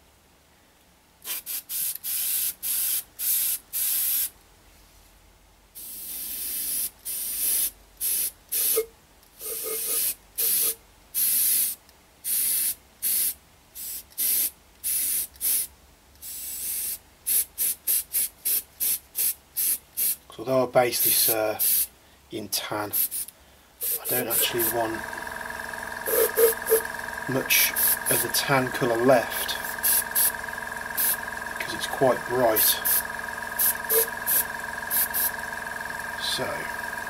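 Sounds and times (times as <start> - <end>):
airbrush spraying hiss: 1.3 - 4.3, 5.8 - 8.8, 9.4 - 20.2, 22.9 - 25.0, 26.1 - 28.3, 29.4 - 30.4, 31.0 - 31.2, 32.5 - 35.4.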